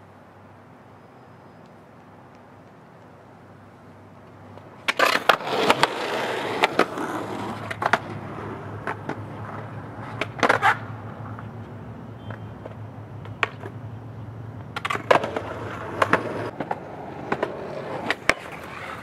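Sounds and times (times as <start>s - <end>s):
skate grinding on concrete: 4.6s - 11.6s, 14.7s - 19.0s
roller skate wheels knocking: 4.8s - 11.5s, 14.6s - 19.0s.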